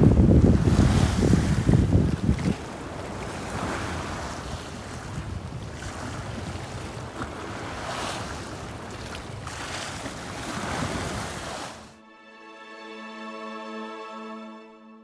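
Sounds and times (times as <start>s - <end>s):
wind rumbling on microphone: 0.0s - 11.9s
sea waves breaking: 0.0s - 12.0s.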